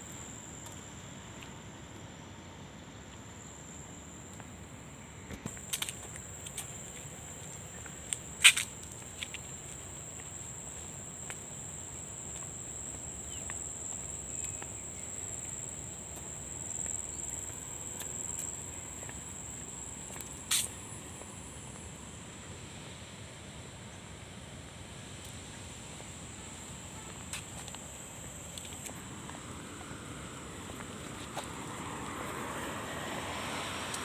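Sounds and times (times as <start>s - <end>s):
insects buzzing: 0.0s - 34.0s.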